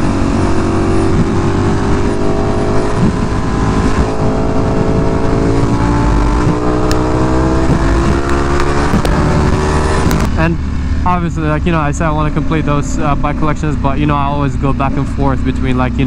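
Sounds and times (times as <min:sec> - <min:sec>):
wind rush on microphone: 0:00.0 - 0:11.1
motorcycle engine running: 0:00.0 - 0:16.0.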